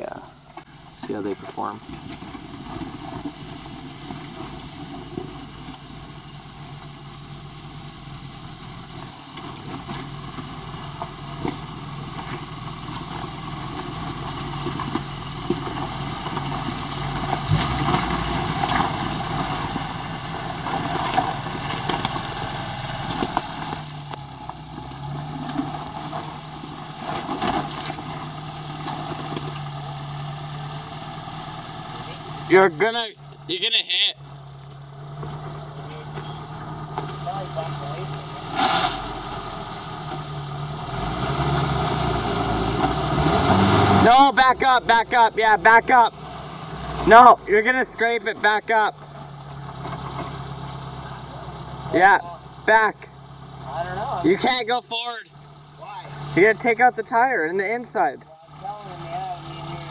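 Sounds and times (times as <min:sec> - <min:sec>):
suv engine running at low revs: 0:00.0 - 0:59.9
rocks crunching under tyres: 0:20.5 - 0:30.0.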